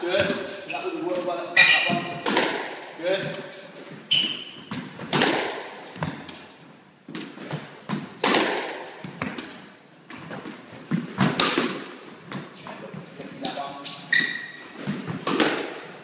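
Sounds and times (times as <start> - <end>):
squash ball cracks and thuds: 1.2 - 3.4, 4.6 - 6.4, 7.1 - 12.4, 14.8 - 16.0.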